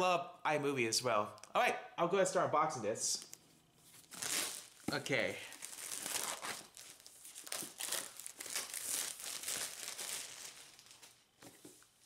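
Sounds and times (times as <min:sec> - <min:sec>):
packaging crinkling and tearing: 0:04.0 - 0:04.8, 0:05.4 - 0:11.2.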